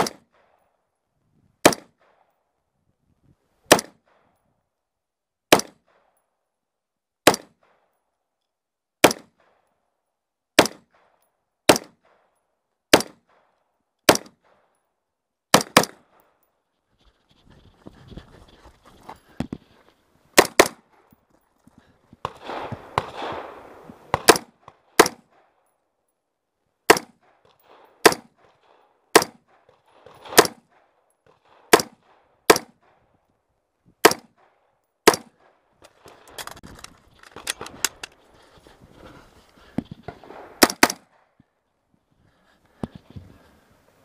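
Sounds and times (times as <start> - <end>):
rifle shots: 1.6 - 2.2, 3.7 - 4.2, 5.5 - 6.0, 7.2 - 7.8, 9.0 - 9.5, 10.6 - 11.1, 11.7 - 12.2, 12.9 - 13.5, 14.1 - 14.5, 15.5 - 16.2, 20.4 - 21.0, 22.2 - 25.4, 26.9 - 32.9, 34.0 - 36.6, 40.1 - 41.2.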